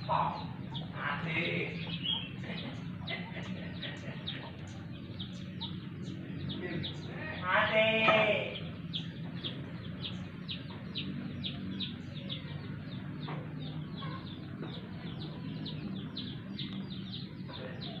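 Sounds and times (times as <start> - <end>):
bird chirping: 0.0 - 18.0.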